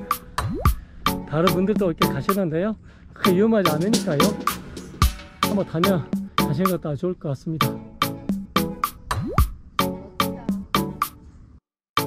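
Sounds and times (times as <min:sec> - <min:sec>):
background music with drum beat: 0:00.0 - 0:02.4, 0:03.3 - 0:06.8, 0:07.6 - 0:11.2.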